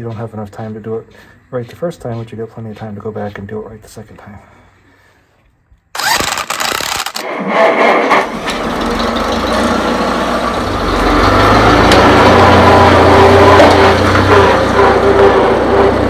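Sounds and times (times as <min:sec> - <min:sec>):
engine cranking: 0:06.0 - 0:16.0
engine running steadily: 0:08.3 - 0:16.0.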